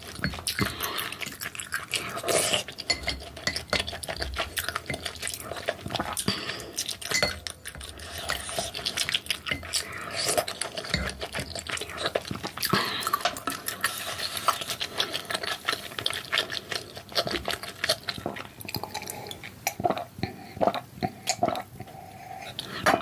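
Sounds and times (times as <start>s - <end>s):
soft chewing: 0.0s - 23.0s
gulping a drink: 16.3s - 23.0s.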